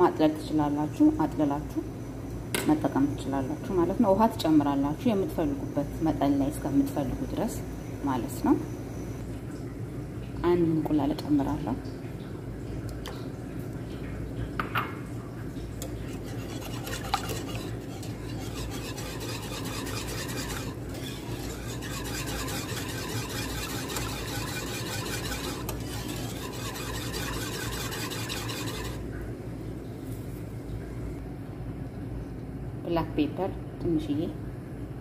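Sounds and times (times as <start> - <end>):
whisk clinking on pan: 15.8 - 29.0
whisk swishing and scraping in pan: 15.8 - 29.0.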